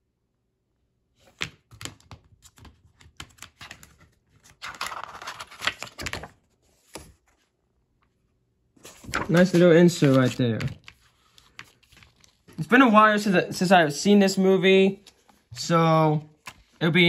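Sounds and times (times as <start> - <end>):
paper rustling: 1.2 - 7.5, 8.8 - 13.7, 14.8 - 17.0.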